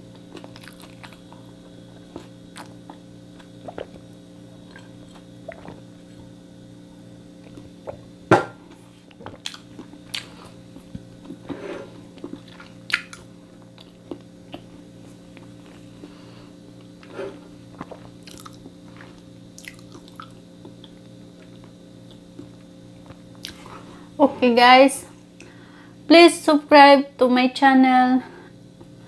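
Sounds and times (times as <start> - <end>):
steady low hum: 0.0 - 29.0
chewing: 0.2 - 1.4, 2.1 - 4.0, 12.2 - 14.8, 17.7 - 23.7.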